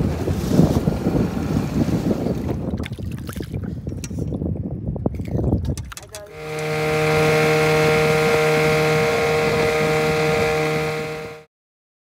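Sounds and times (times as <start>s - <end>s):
wind noise: 0.0s - 11.4s
outboard motor running: 5.8s - 11.5s.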